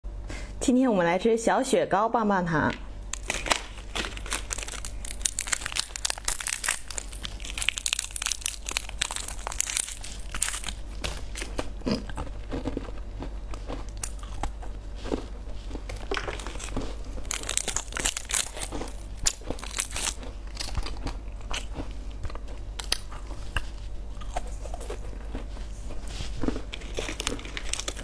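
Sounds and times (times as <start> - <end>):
plastic wrappers crinkling and tearing: 3.1 - 11.8, 15.8 - 21.9, 26.2 - 28.0.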